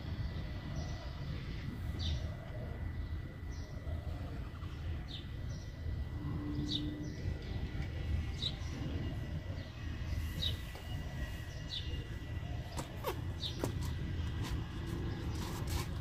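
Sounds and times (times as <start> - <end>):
steady low rumble: 0.0 - 16.0
bird chirping: 2.0 - 14.0.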